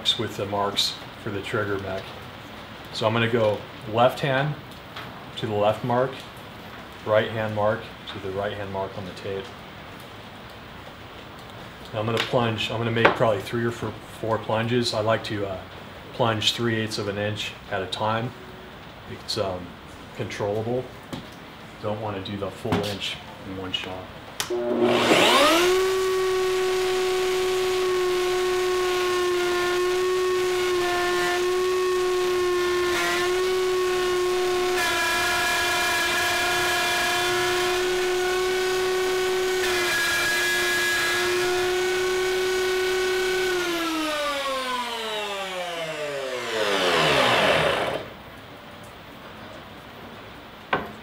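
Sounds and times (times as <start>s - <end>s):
router whining: 24.4s - 48.2s.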